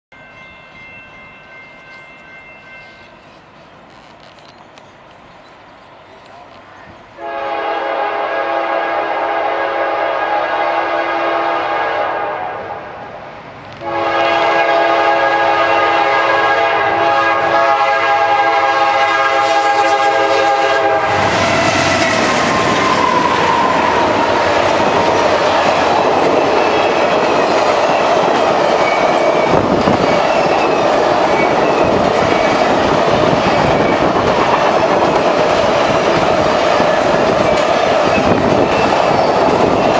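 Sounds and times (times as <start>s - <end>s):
locomotive air horn: 7.2s - 12.8s, 13.8s - 24.5s
train wheels clicking over rail joints: 21.2s - 39.9s.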